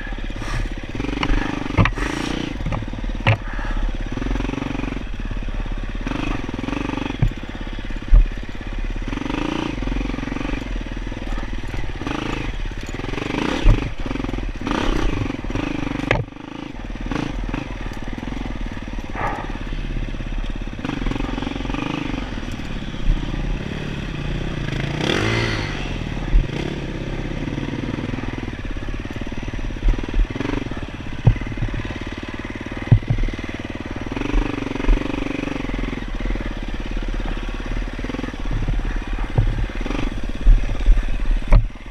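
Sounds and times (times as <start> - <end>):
dirt bike engine revving: 0.0 - 41.9
bike knocks and clatter on bumps: 1.1 - 3.8, 6.3 - 9.0, 11.1 - 16.4, 26.2 - 26.8, 29.8 - 35.2, 38.0 - 41.9.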